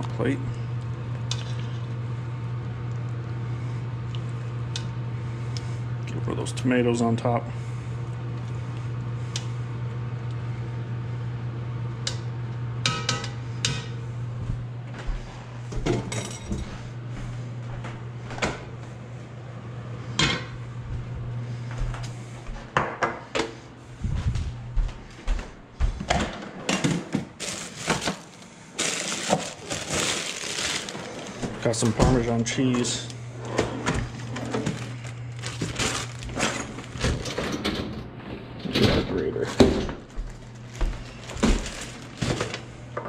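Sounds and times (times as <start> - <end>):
steady low hum: 0.0 - 43.0
plastic packages rustling: 27.2 - 33.0, 34.0 - 37.4, 40.1 - 42.7.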